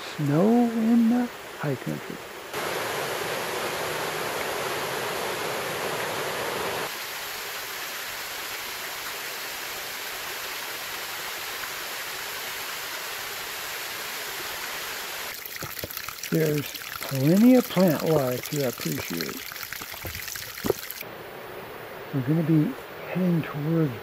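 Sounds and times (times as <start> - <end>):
creek water rushing over rocks: 2.5 - 21.0.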